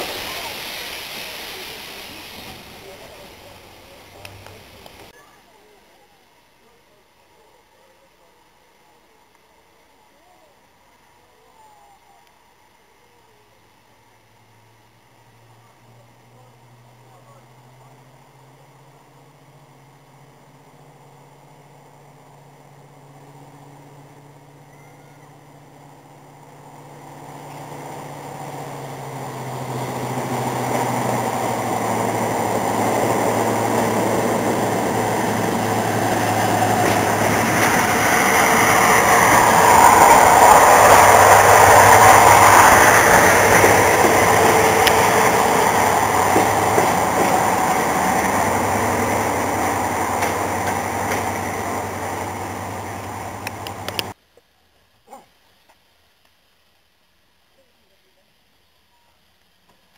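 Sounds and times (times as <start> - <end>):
diesel locomotive engines running: 0.0 - 5.1, 15.7 - 54.2.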